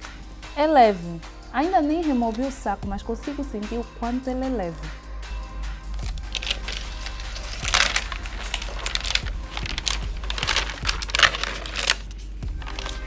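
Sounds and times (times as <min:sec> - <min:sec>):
plastic wrap rustling and crinkling: 0:06.0 - 0:13.0.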